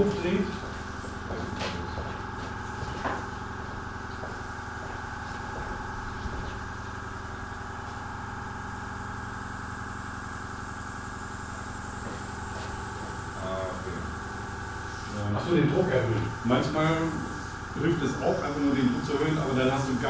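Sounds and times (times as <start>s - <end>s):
airbrush compressor humming: 0.0s - 20.0s.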